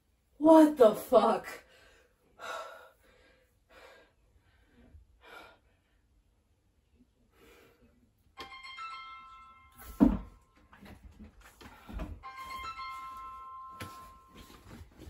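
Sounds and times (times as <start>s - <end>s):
keyboard music: 8.4s - 10.9s, 12.2s - 15.0s.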